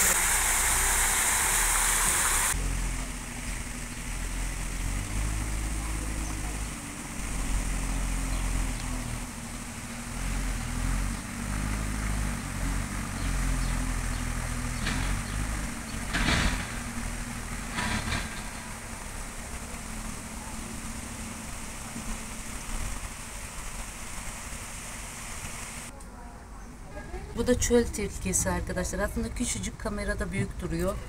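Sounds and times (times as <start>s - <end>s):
waterfall rushing: 0.0s - 2.6s.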